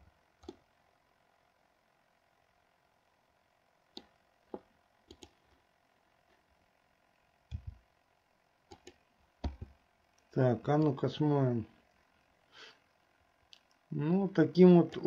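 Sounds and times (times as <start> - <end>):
mouse and keyboard clicks: 3.9 - 5.4, 7.5 - 7.8, 8.7 - 9.7.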